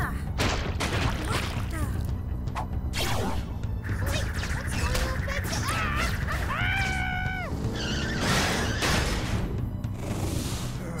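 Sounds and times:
cartoon action music: 2.9 - 9.6.

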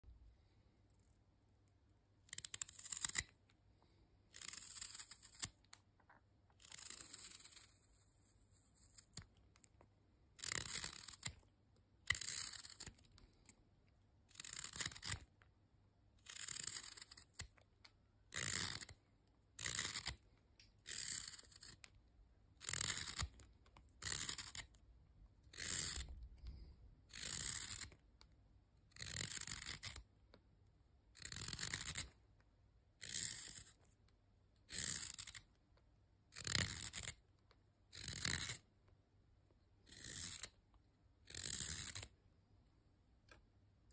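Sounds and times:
knife shaving wood: 2.2 - 5.8, 6.6 - 15.4, 16.2 - 22.0, 22.6 - 24.8, 25.4 - 30.1, 31.2 - 32.2, 33.0 - 33.9, 34.6 - 35.5, 36.3 - 37.3, 37.9 - 38.6, 39.8 - 40.6, 41.2 - 42.2.

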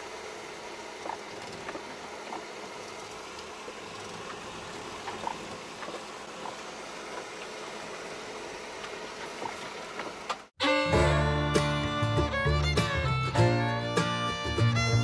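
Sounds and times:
car engine and tyre noise: 0.0 - 10.5.

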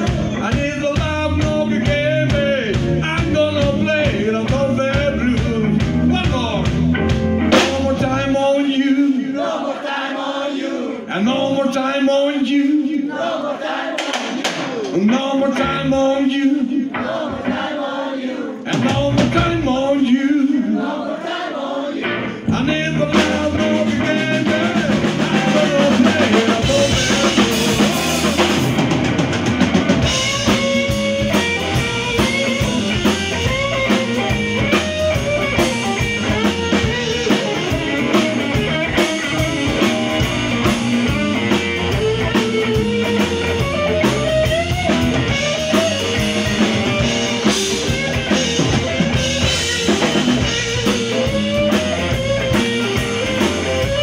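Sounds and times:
drum kit steady beat: 0.0 - 8.3, 13.9 - 15.8, 22.5 - 54.0
electric guitar lead lines: 0.0 - 8.4, 22.0 - 54.0
electric bass: 0.0 - 8.6, 18.7 - 20.1, 22.0 - 54.0.

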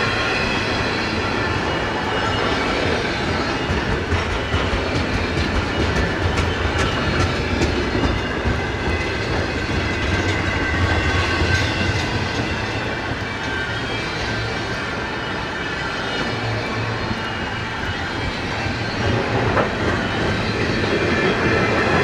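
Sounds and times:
train wheels rumbling on rail: 0.0 - 22.0
wheels clicking over rail joints: 3.2 - 14.7.

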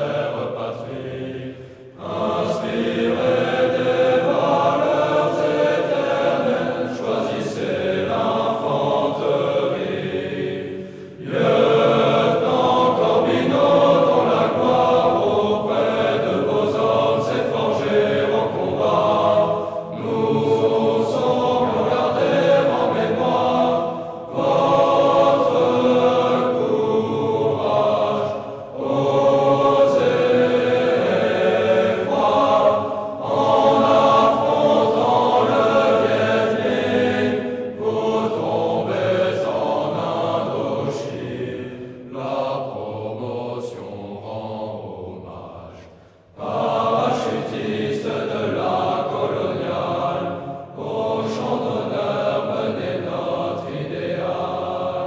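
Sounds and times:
chorus of voices singing: 0.0 - 55.0.

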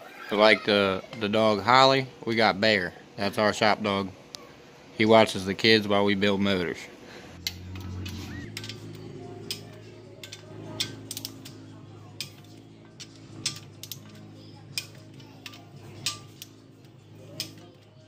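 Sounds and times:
background music: 7.4 - 18.0
socket wrench clicking: 12.2 - 16.6, 17.3 - 17.8.

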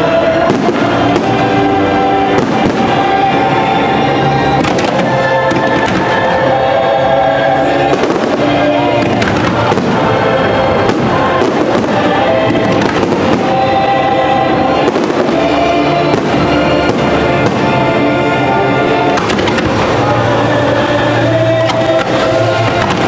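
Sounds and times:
loud show music: 0.0 - 23.0
fireworks popping and banging: 0.5 - 1.6, 2.3 - 3.2, 4.6 - 6.4, 7.9 - 10.2, 10.8 - 13.8, 14.8 - 17.9, 19.1 - 20.3, 21.6 - 23.0.

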